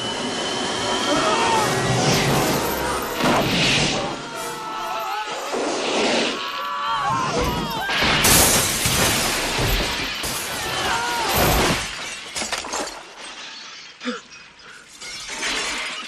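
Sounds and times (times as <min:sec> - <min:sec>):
glass window shattering: 0:07.4 - 0:14.0, 0:14.9 - 0:16.0
glass shards clinking: 0:08.2 - 0:16.0.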